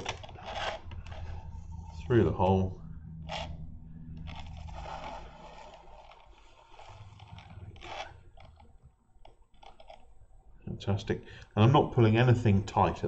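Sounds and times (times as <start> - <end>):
fingers scraping and rustling: 0.0 - 2.1, 3.2 - 10.1.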